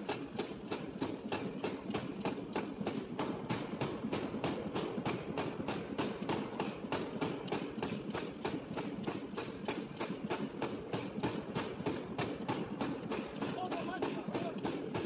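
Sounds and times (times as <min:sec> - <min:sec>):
power hammer striking steel: 0:00.1 - 0:15.0
machine low rumble: 0:07.6 - 0:15.0.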